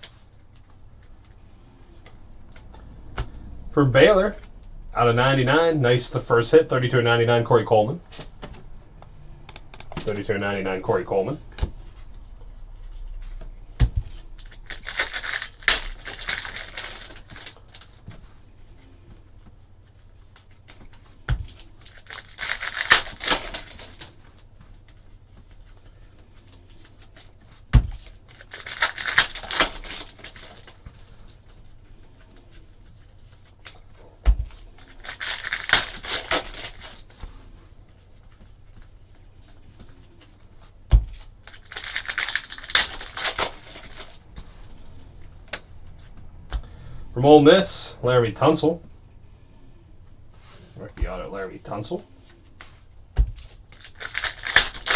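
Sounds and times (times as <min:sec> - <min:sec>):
cards rustling and sliding: 0:12.8 - 0:46.4, 0:52.2 - 0:54.9.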